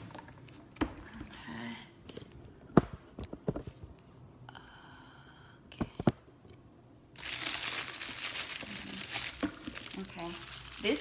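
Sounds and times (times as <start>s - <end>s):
plastic bag crinkling: 7.2s - 11.0s.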